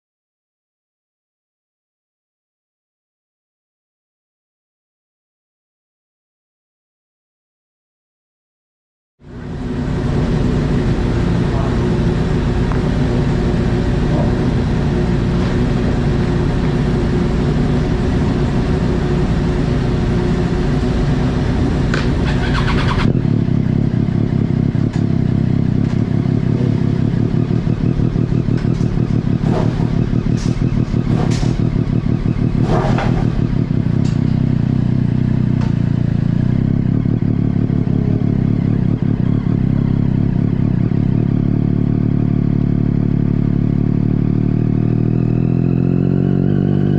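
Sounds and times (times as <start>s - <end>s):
motorcycle engine idling: 9.2s - 46.4s
motorcycle pulling away: 9.3s - 46.9s.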